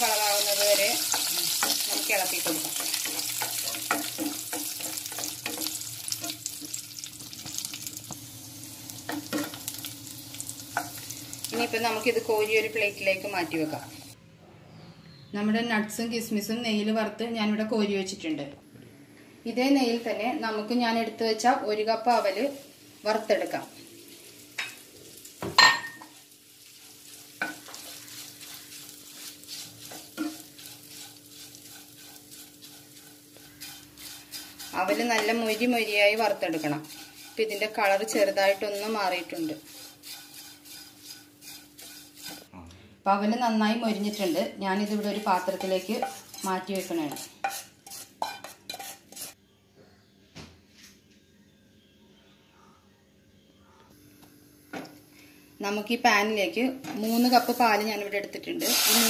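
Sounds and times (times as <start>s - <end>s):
nuts sizzling in a pan: 0.0s - 14.2s, 21.9s - 42.5s, 43.7s - 49.4s, 56.9s - 59.0s
wooden spatula scraping a pan: 0.5s - 6.6s, 26.1s - 42.5s, 43.9s - 49.4s.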